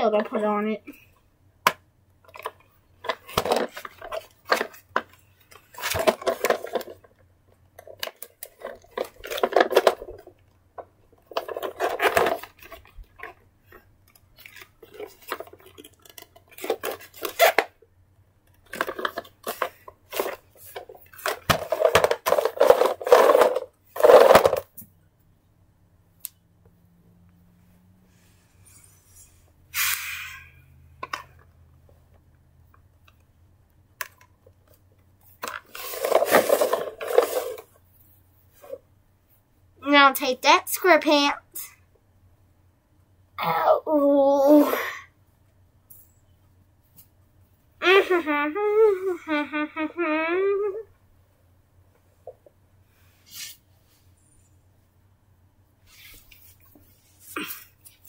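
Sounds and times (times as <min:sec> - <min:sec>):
rustling and plastic clatter: 0:02.2 - 0:17.8, 0:18.5 - 0:24.9, 0:31.0 - 0:33.2, 0:34.0 - 0:38.8
short hiss: 0:28.6 - 0:30.6.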